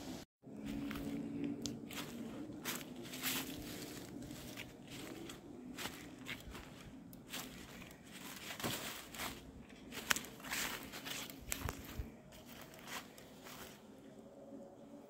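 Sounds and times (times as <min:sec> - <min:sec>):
footsteps crunching on a trail: 0:00.5 - 0:13.9
twigs snapping: 0:01.4 - 0:02.1, 0:05.8 - 0:13.3.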